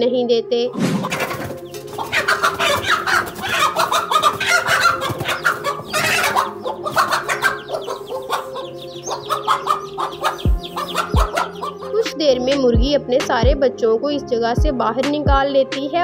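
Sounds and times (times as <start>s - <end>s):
hen squawking and clucking: 0.7s - 12.2s.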